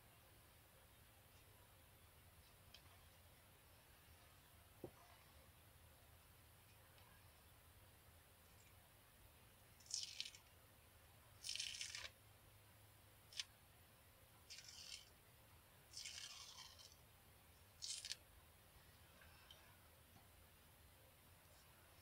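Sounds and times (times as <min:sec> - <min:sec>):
face mask peeling off skin: 0:09.8 - 0:10.4, 0:11.4 - 0:12.1, 0:14.5 - 0:15.1, 0:15.9 - 0:17.0, 0:17.8 - 0:18.2.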